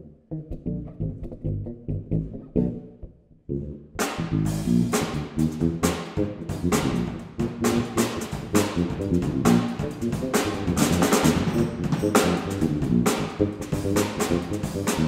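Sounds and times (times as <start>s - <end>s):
electric bass through amp: 0.0s - 15.0s
drum kit playing: 4.0s - 15.0s.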